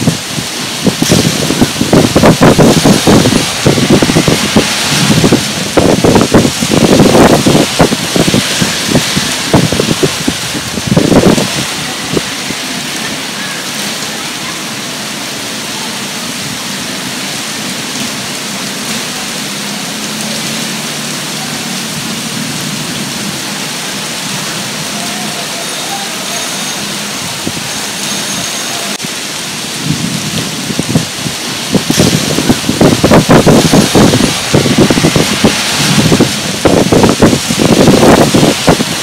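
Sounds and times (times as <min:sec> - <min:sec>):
rain on a wet street: 0:00.0 - 0:39.0.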